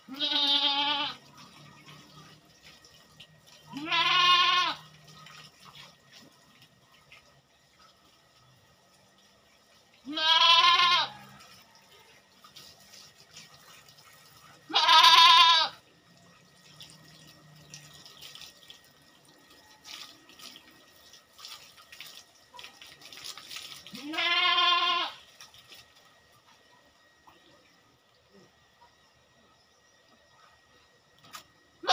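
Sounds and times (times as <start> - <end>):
water running from a hose: 0.0 - 27.2
goat bleating: 0.1 - 1.2, 3.7 - 4.9, 10.0 - 11.2, 14.7 - 15.8, 23.9 - 25.2.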